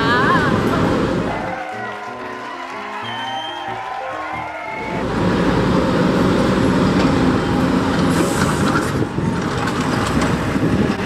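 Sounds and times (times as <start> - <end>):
street traffic: 0.0 - 1.7, 3.9 - 11.0
large vehicle engine running: 4.8 - 11.0.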